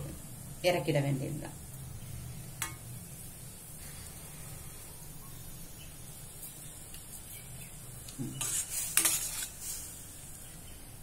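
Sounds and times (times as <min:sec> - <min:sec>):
steady low hum: 0:00.0 - 0:08.4
ladle scraping metal pan: 0:08.3 - 0:09.9.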